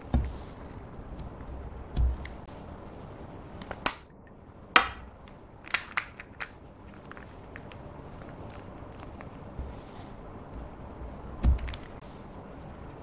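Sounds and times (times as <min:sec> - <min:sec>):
plastic clicks and snaps: 0:04.8 - 0:09.2.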